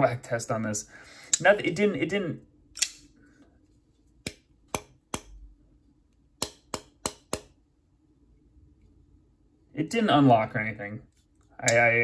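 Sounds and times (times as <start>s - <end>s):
folding knife clicks and snaps: 2.8s - 3.1s.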